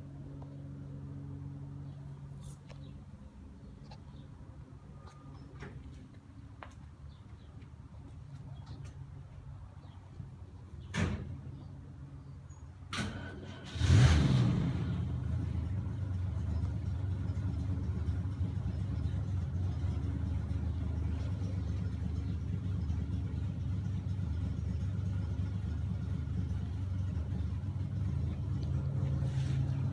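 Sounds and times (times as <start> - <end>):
engine idling: 13.0 - 29.9.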